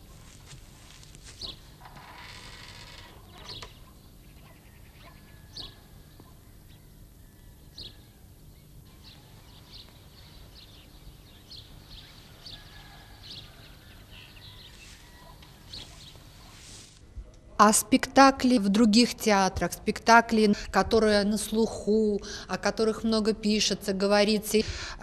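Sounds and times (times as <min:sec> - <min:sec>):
steady low hum: 0:00.0 - 0:25.0
birds chirping: 0:08.6 - 0:16.5.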